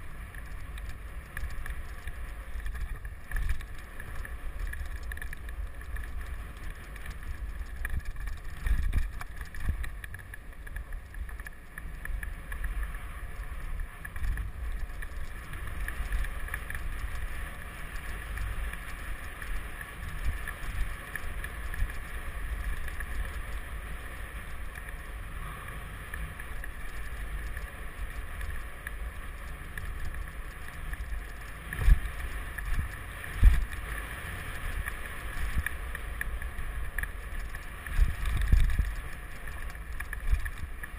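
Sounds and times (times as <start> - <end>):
bike rattling over bumps: 0.0 - 40.9
wind buffeting microphone: 31.0 - 40.8.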